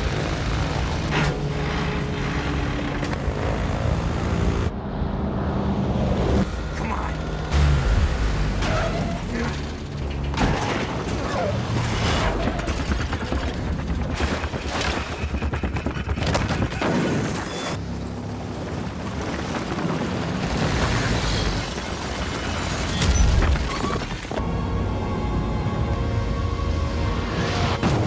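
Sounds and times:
propeller plane engines: 0.0 - 10.2
film music: 24.4 - 28.0.

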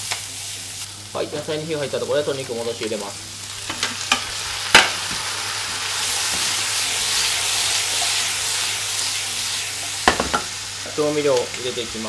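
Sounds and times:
food sizzling in a frying pan: 0.0 - 12.0
sharp knock on frying pan: 10.0 - 10.5.

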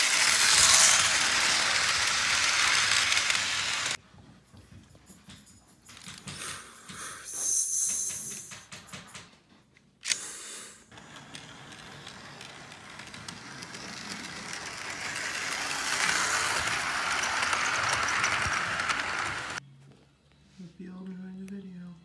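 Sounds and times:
toy train motor whirring: 0.0 - 4.0, 10.9 - 19.6.

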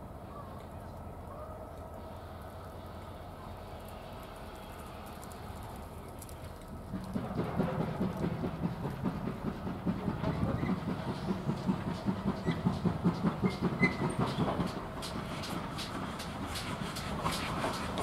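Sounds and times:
wheels clicking over rail joints: 2.7 - 18.0
steam locomotive chuffing: 6.6 - 18.0.

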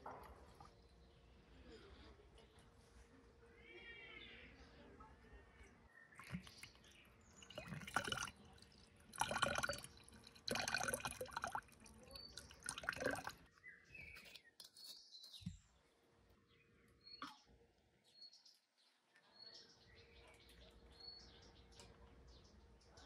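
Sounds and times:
water splashing: 6.2 - 13.4.

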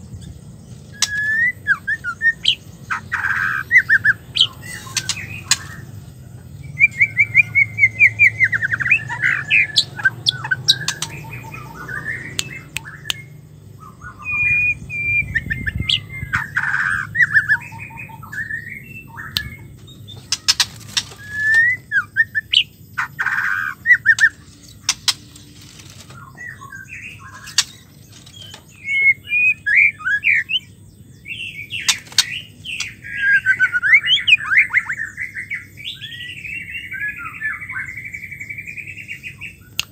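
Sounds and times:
sharp bird clicks: 0.9 - 1.5, 2.4 - 5.8, 8.5 - 13.4, 17.5 - 21.8, 22.5 - 30.4, 31.7 - 33.2, 39.7 - 39.9
bird whistling and chattering: 0.9 - 5.9, 6.7 - 30.7, 31.3 - 39.9.

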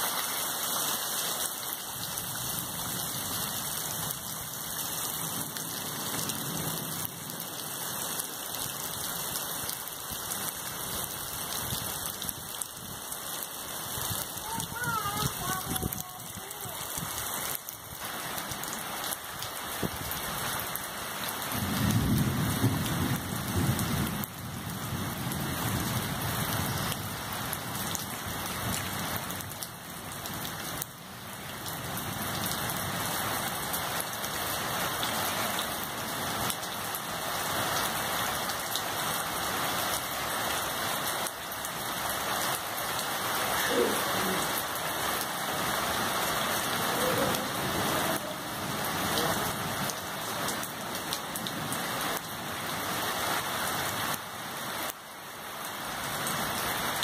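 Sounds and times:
heavy rain falling: 0.0 - 57.0
thunder rumbling: 21.5 - 26.6.

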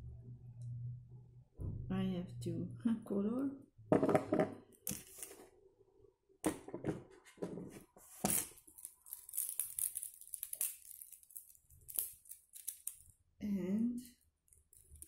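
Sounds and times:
rustling and crinkling: 7.0 - 13.1.

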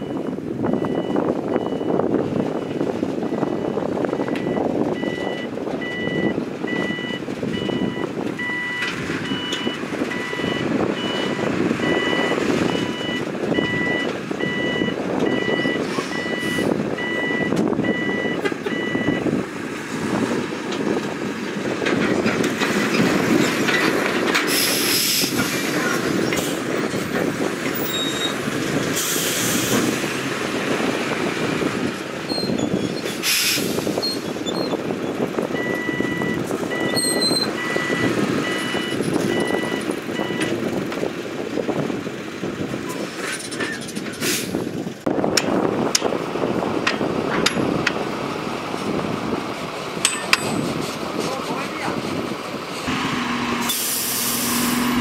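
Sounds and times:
reversing alarm beeping: 0.0 - 19.2, 35.6 - 40.5
diesel trucks running: 0.0 - 55.0.

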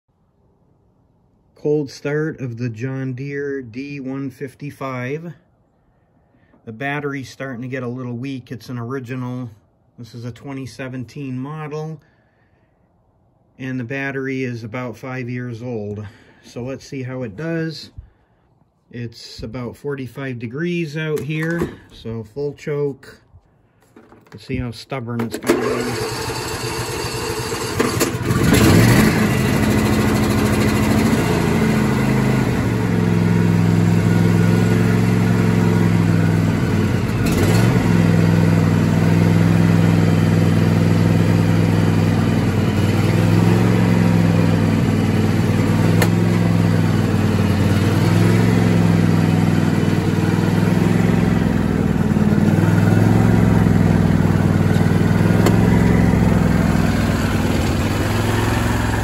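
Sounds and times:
mower engine running: 25.2 - 59.0
starter motor cranking: 25.3 - 31.1, 45.4 - 46.7, 52.6 - 59.0.

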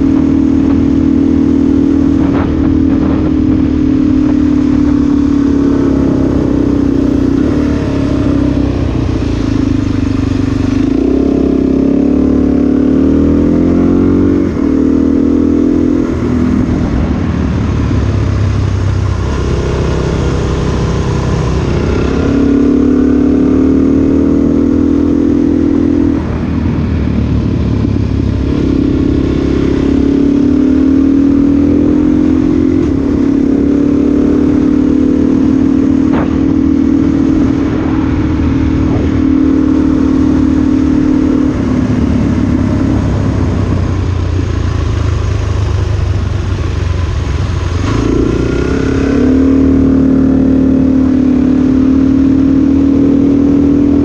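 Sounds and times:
wind rush: 0.0 - 11.8, 24.4 - 44.8
motorcycle engine revving: 0.0 - 54.0.

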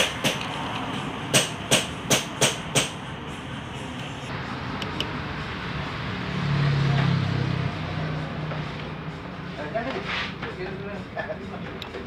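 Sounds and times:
steady background noise: 0.0 - 12.0
sharp knocks: 1.3 - 3.0.

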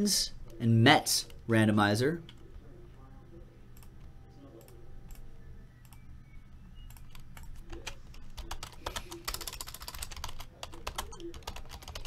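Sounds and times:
keyboard typing clicks: 6.8 - 12.0.

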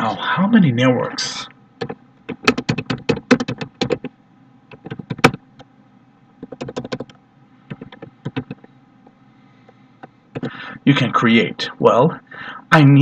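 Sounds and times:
computer keyboard typing: 1.8 - 4.1, 4.7 - 5.4, 6.4 - 8.7, 10.3 - 10.6.

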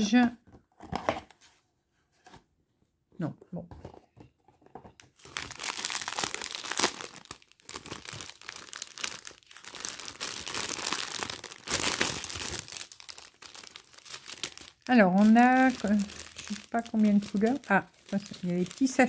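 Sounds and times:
plastic packaging crinkling: 4.9 - 19.0.

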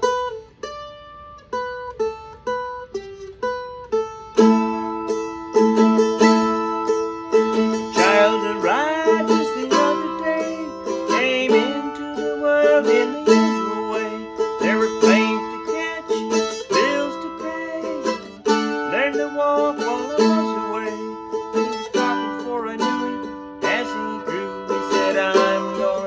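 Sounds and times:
plucked string instrument melody: 0.0 - 26.0.

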